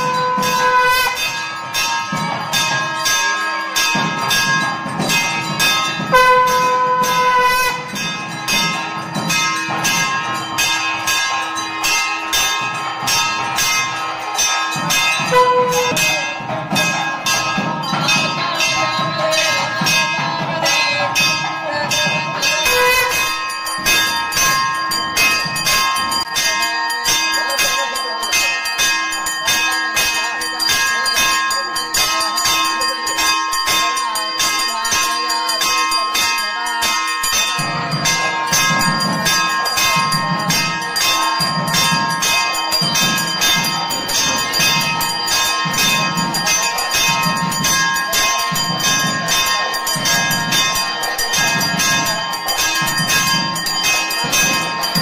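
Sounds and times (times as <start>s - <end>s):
temple bells ringing rapidly: 0.0s - 55.0s.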